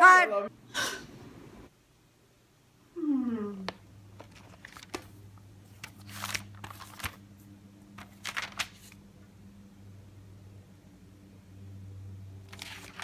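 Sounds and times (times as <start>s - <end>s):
notebook pages turning: 4.2s - 7.3s, 8.0s - 9.0s, 12.5s - 13.0s.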